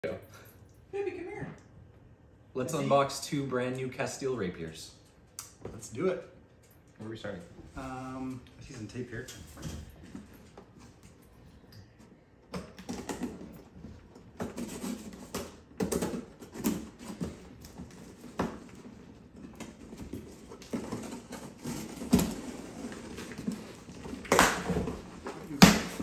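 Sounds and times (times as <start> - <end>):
cardboard scraping and rustling: 14.4 - 26.0.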